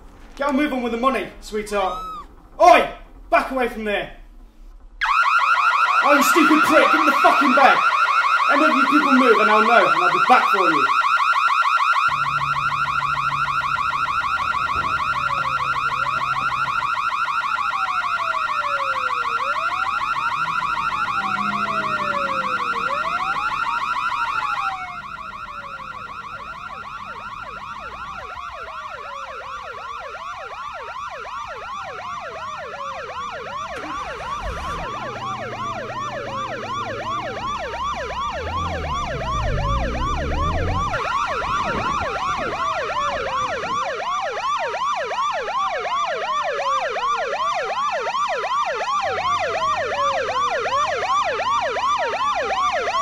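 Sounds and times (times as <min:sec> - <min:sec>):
fast-warbling alarm: 0:01.6 - 0:03.2, 0:05.0 - 0:53.0
police siren wailing: 0:01.7 - 0:02.4, 0:05.0 - 0:53.0
low car engine hum: 0:12.0 - 0:44.0.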